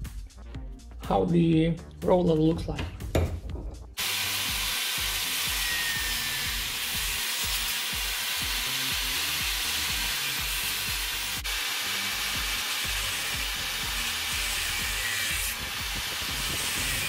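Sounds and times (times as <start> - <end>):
background music with beat: 0.0 - 4.0
angle grinder cutting metal: 4.0 - 17.0.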